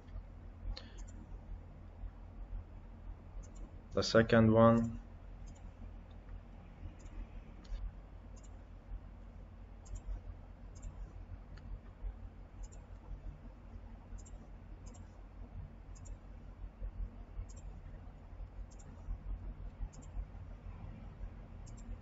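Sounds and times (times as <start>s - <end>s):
computer mouse clicking: 0.0s - 1.3s, 3.4s - 3.7s, 4.8s - 8.6s, 9.8s - 12.0s, 12.6s - 13.2s, 14.1s - 15.2s, 15.9s - 16.2s, 17.4s - 17.9s, 18.6s - 20.3s, 21.6s - 22.0s
low steady hum: 0.0s - 22.0s.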